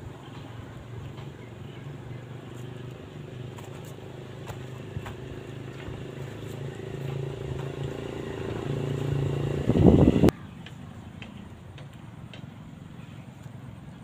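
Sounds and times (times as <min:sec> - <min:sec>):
motor engine running: 0:00.3 - 0:10.3.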